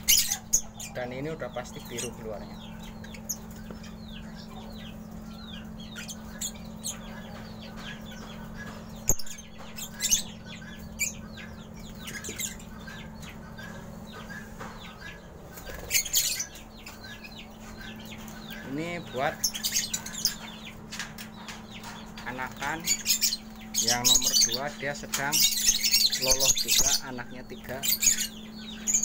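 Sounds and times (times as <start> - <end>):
lovebirds chirping: 0.0 - 29.0
wings flapping: 15.5 - 16.4.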